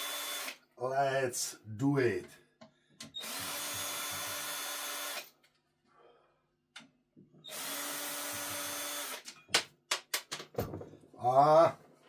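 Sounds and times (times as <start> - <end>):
cordless drill motor running: 0.0 - 0.6, 3.2 - 5.3, 7.5 - 9.2.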